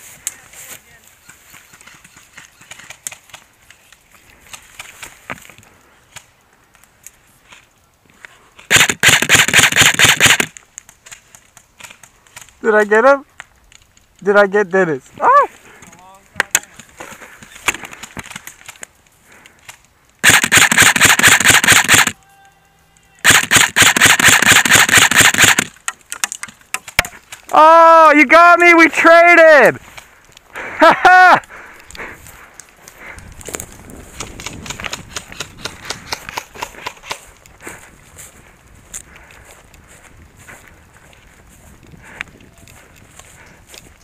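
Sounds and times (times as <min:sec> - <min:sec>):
airsoft rifle full-auto burst: 0:08.7 - 0:10.5, 0:20.2 - 0:22.2, 0:23.2 - 0:25.7.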